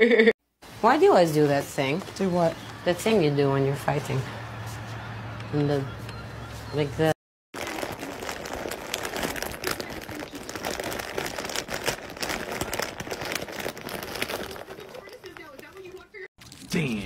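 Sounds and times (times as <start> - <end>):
plastic chip bag crinkling: 7.6 - 16.9.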